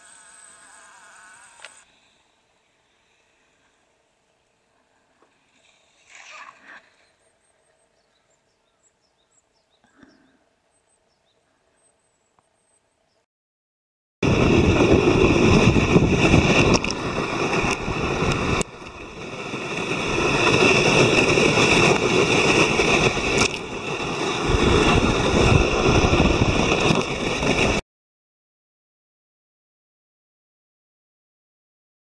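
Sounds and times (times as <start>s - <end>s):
sled scraping over snow: 14.2s - 27.8s
wind on microphone: 14.2s - 27.8s.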